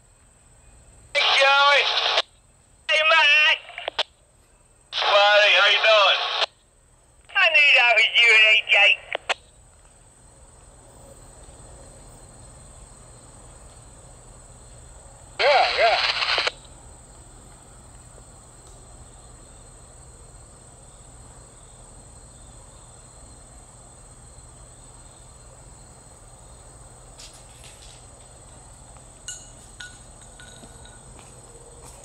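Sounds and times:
crickets chirring: 0.0 - 32.0.

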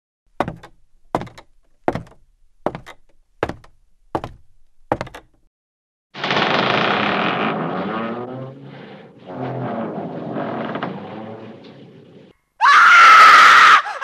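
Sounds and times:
knocking on a door: 0.4 - 5.4.

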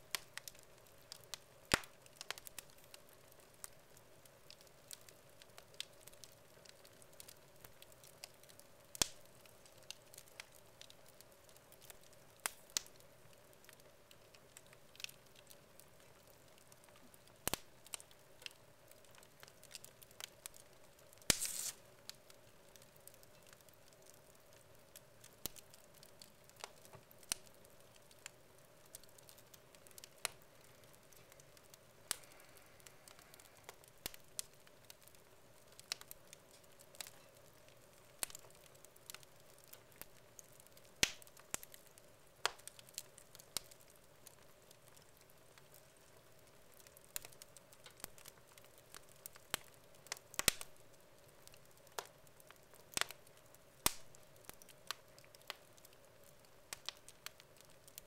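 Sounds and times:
wood fire crackling and popping: 0.0 - 58.0.

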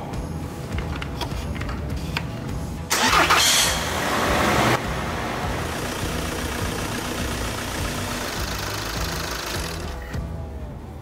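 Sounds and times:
car engine idling: 3.0 - 10.1.

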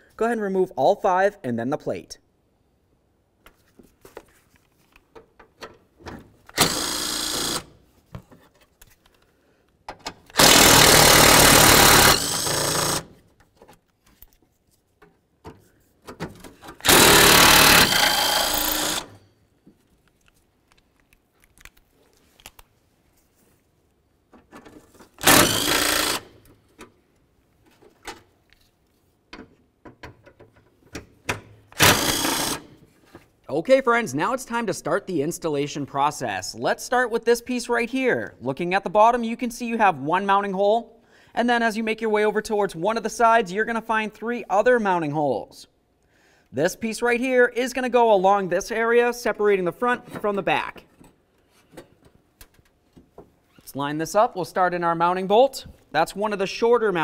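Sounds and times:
power tool whirring: 6.5 - 7.8, 10.3 - 13.2, 16.8 - 19.2, 25.2 - 26.4, 31.8 - 32.8.

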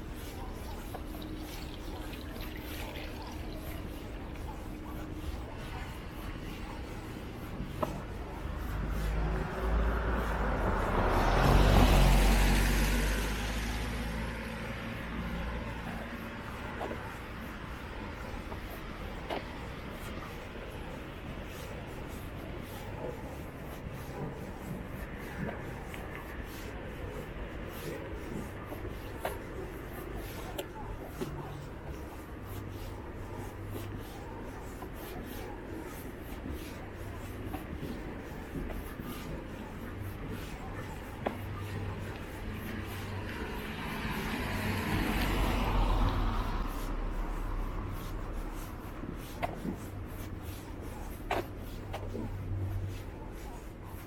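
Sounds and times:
low background noise: 0.0 - 54.0
car passing by: 8.4 - 16.8, 39.0 - 50.4
footsteps scuffing on path: 15.8 - 54.0.

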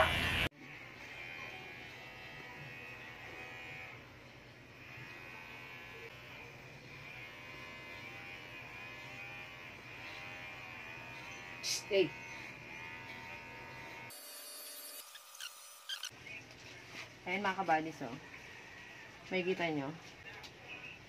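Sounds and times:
electric hair clipper buzzing: 0.0 - 16.1.

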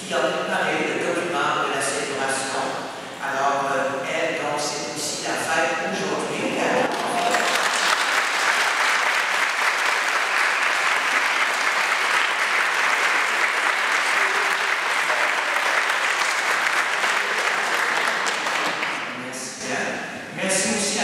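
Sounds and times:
crowd applauding: 6.8 - 19.1.

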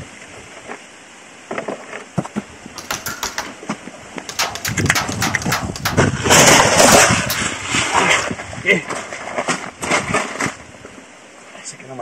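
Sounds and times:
toy gun parts clicking and rattling: 4.3 - 6.1.

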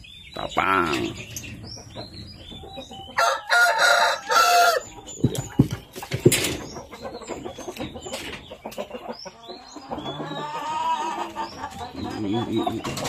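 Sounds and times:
rooster crowing: 3.2 - 4.9
sharp knocks: 5.2 - 6.7.

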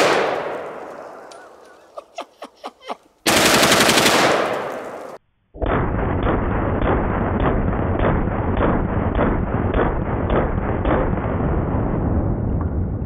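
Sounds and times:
automatic rifle fire echoing: 0.0 - 0.9, 3.3 - 11.3.

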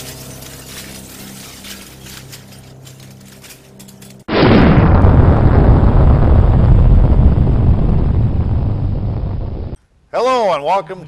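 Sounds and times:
low hum: 0.0 - 9.8
faint crackle: 4.2 - 9.8
thunder crack and rumble: 4.3 - 9.8.

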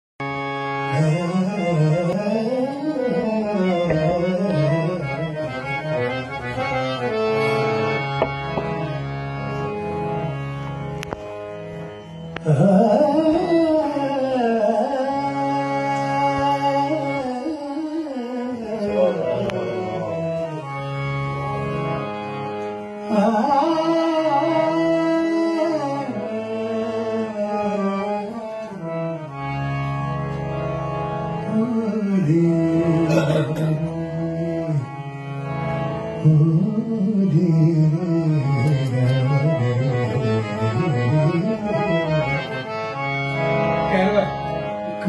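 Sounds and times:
harmonium: 0.2 - 45.0
man singing: 0.9 - 5.4, 12.4 - 20.7, 23.1 - 28.4, 31.4 - 34.9, 36.2 - 42.0.

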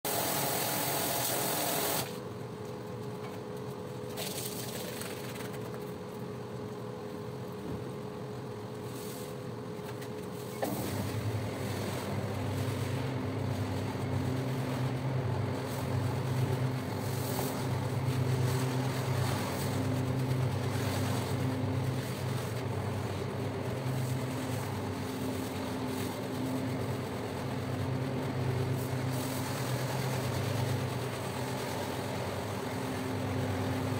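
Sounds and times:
floor scrubber motor hum: 0.1 - 2.1
brush scrubbing wet rug: 10.9 - 28.0.

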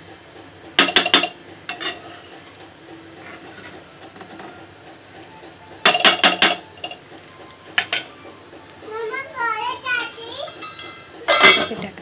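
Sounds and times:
spoon scraping pan: 1.7 - 2.6, 3.2 - 4.6.

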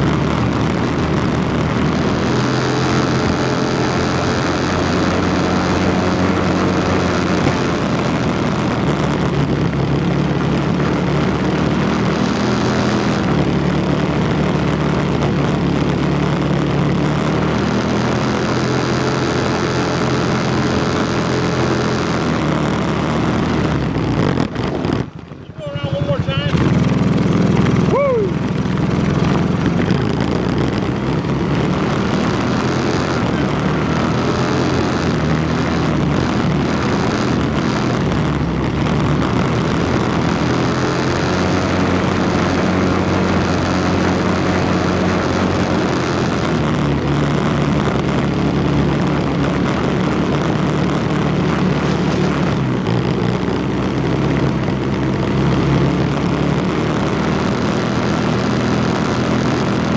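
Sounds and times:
atv engine running: 0.0 - 59.9.

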